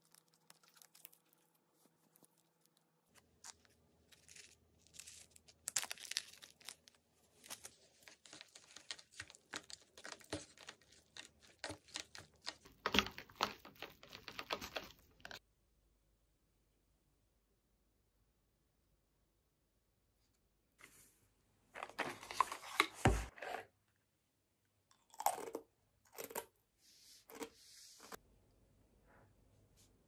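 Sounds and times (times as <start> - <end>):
crinkling and rustling: 0.0 - 15.4, 21.7 - 23.7.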